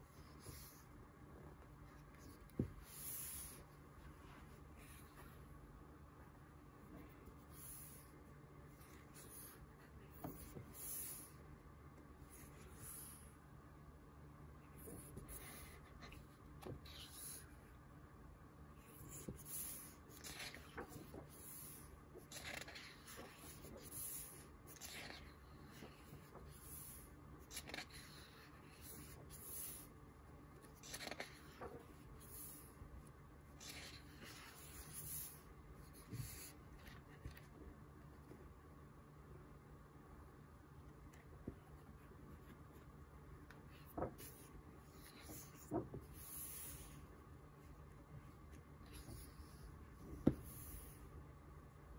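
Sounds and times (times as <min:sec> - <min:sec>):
book pages turning: 0:19.0 - 0:24.0, 0:24.7 - 0:29.8, 0:30.5 - 0:32.7, 0:43.4 - 0:47.0.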